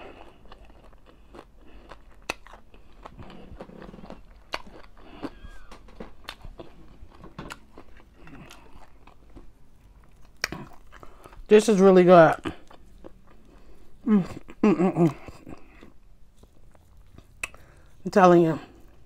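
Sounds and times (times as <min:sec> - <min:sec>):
sharp crunch of bite: 0:00.0 - 0:06.8, 0:07.5 - 0:09.2, 0:10.2 - 0:11.4
person chewing food: 0:00.0 - 0:11.6, 0:12.3 - 0:18.0.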